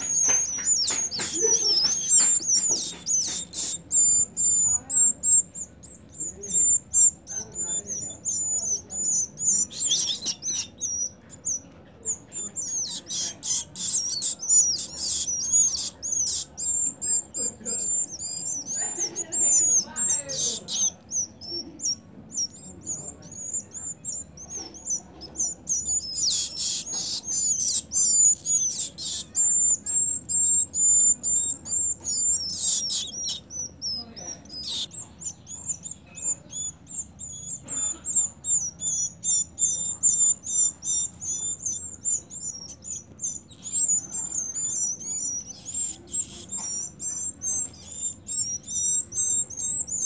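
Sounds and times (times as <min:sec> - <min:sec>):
scratchy bird bursts: 0:00.0 - 0:05.8
young birds begging chirps: 0:00.0 - 0:50.0.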